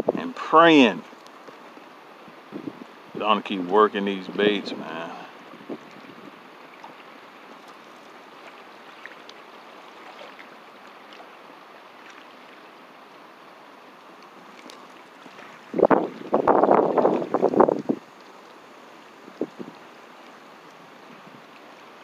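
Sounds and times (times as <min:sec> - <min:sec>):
wind buffeting microphone: 0:00.0 - 0:00.4, 0:02.3 - 0:03.3, 0:04.3 - 0:06.5, 0:15.6 - 0:18.1, 0:19.2 - 0:19.8
wind rushing over microphone: 0:00.0 - 0:00.7, 0:02.3 - 0:03.4, 0:04.2 - 0:06.4, 0:15.7 - 0:18.0.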